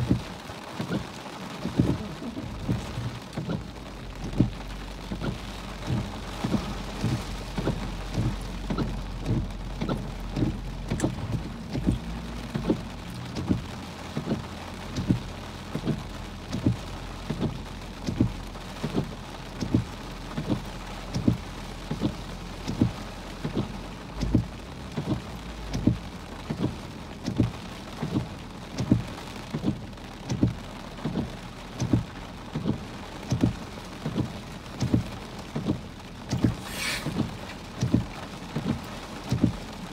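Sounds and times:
heavy rain on a car: 0:00.0 - 0:39.9
regular thump: 0:19.6 - 0:39.7.

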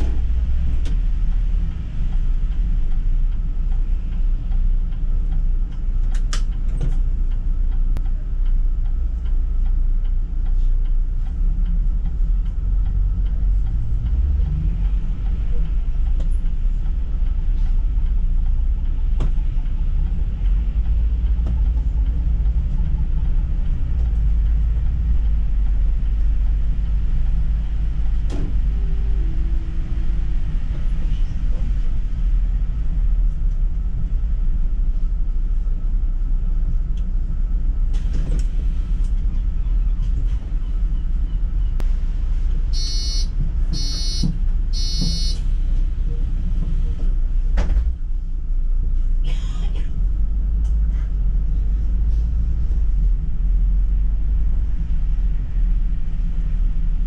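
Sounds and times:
bus engine and road rumble: 0:00.0 - 0:57.0
short electronic beeps: 0:42.8 - 0:45.4.

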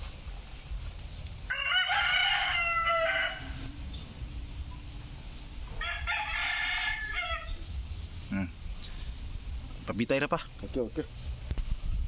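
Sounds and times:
rooster crowing: 0:01.5 - 0:03.8, 0:05.7 - 0:07.6.

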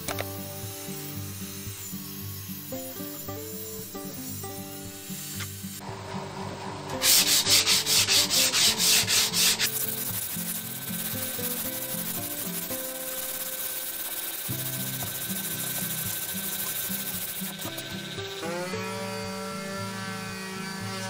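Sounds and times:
sanding block on wood: 0:07.0 - 0:18.1.

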